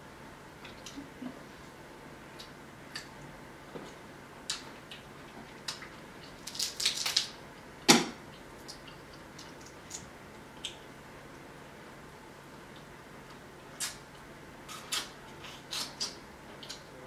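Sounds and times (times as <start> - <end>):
crab shells cracking: 5.6 - 7.4.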